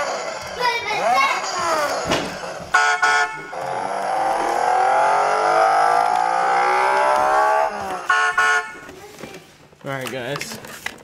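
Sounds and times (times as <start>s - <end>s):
electronic engine sound rising: 1.4s - 8.3s
toy car horn beeps: 2.7s - 3.9s, 7.3s - 8.9s.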